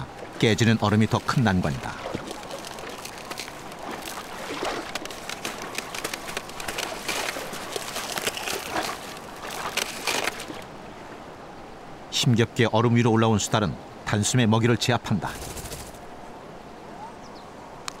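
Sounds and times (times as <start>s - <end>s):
otter thrashing in water: 0.0s - 10.6s
water splashing and sloshing: 0.0s - 11.4s
ice cracking: 1.0s - 10.6s.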